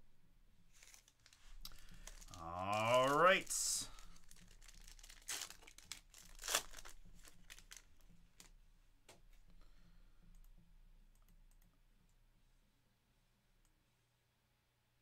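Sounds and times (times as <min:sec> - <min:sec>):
foil wrapper crinkling: 0:00.7 - 0:08.6
faint clicks of card handling: 0:00.7 - 0:09.6.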